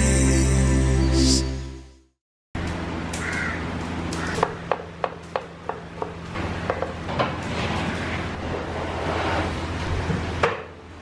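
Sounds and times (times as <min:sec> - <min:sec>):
crow cawing: 0:03.2 - 0:04.6.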